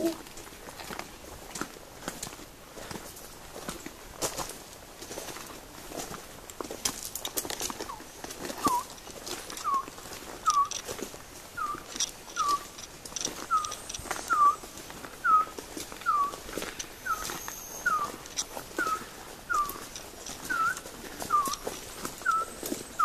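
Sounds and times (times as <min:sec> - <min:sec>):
person whistling bird call: 0:09.6 - 0:09.9, 0:11.6 - 0:11.8, 0:12.4 - 0:12.7, 0:13.5 - 0:14.6, 0:15.2 - 0:16.4, 0:17.0 - 0:18.2, 0:18.8 - 0:19.9, 0:20.5 - 0:21.6, 0:22.3 - 0:22.6.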